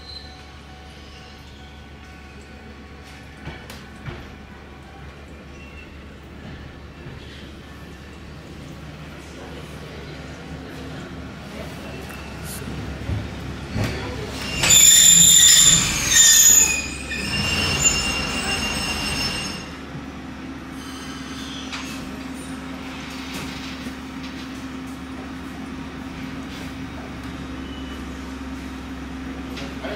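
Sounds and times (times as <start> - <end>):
tram wheels squealing: 0.0 - 2.8, 11.8 - 20.0, 20.7 - 23.0.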